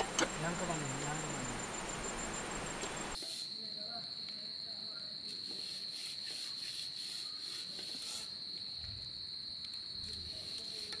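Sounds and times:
insect rasping in pulses: 0:00.0 - 0:03.2
crickets trilling: 0:00.0 - 0:11.0.

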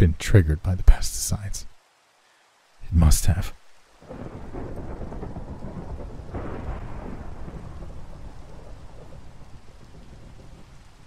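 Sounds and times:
steady rain: 0:00.0 - 0:11.0
thunder rumbling: 0:04.0 - 0:11.0.

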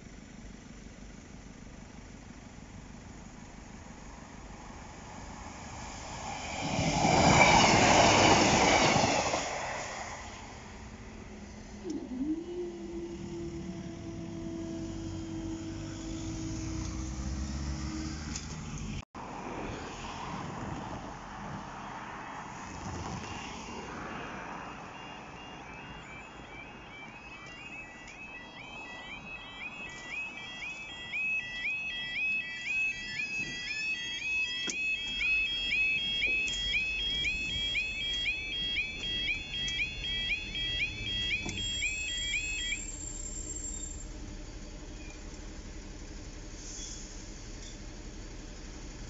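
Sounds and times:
road noise: 0:00.0 - 0:49.0
warbling two-tone alarm: 0:06.4 - 0:09.6, 0:11.8 - 0:17.4, 0:24.7 - 0:44.0
repeating electronic beep: 0:24.9 - 0:44.0.

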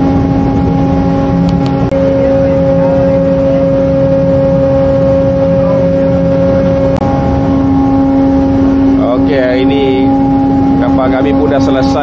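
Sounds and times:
ship machinery hum: 0:00.0 - 0:12.0
wind noise on microphone: 0:00.0 - 0:12.0.

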